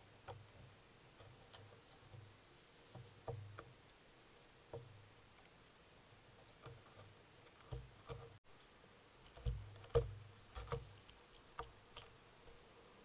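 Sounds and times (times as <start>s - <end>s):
bird tapping bill on railing: 0.0s - 4.0s, 4.7s - 5.1s, 6.4s - 8.4s, 9.2s - 12.6s.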